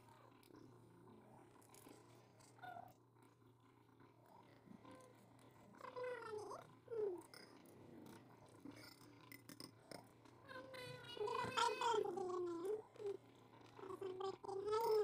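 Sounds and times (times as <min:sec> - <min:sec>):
faint eating clicks and taps: 0:07.2 - 0:10.4.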